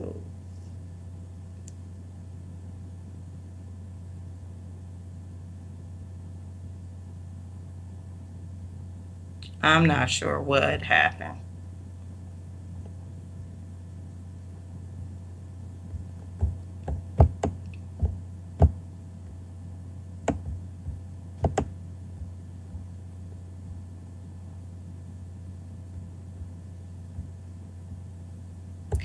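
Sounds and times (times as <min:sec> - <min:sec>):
steady low hum: 0:00.0 - 0:29.0
mouse and keyboard clicks: 0:21.4 - 0:21.7.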